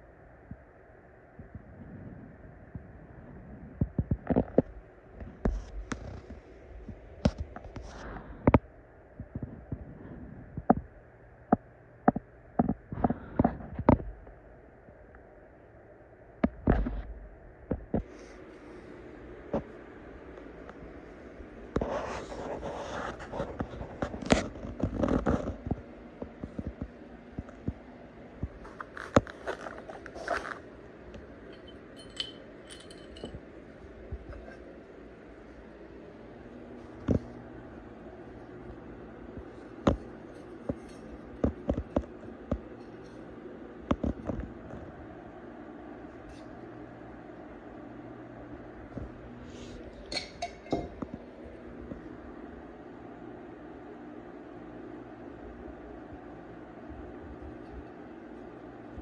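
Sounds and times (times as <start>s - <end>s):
metal parts scraping and clattering: 31.5s - 33.4s
metallic ringing clinks: 31.5s - 33.4s
tools clicking on work surface: 31.5s - 33.4s.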